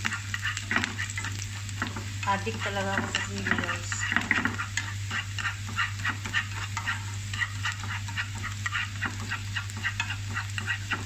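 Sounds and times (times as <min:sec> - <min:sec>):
chopsticks stirring in pan: 0:00.0 - 0:11.0
garlic sizzling in oil: 0:00.0 - 0:11.0
steady low hum: 0:00.0 - 0:11.0.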